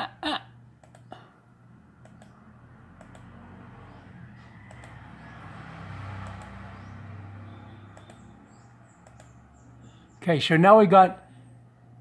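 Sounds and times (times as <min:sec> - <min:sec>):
steady low hum: 0:00.0 - 0:04.8
computer mouse clicking: 0:00.8 - 0:01.1, 0:02.0 - 0:03.4, 0:04.7 - 0:05.0, 0:06.2 - 0:06.6, 0:07.9 - 0:09.4.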